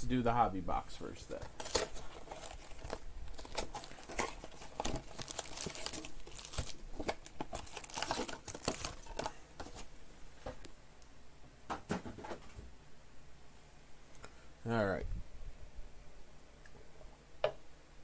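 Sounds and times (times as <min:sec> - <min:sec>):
card packs crinkling and rustling: 0:01.2 - 0:09.9
plastic wrapping being torn: 0:01.5 - 0:09.4.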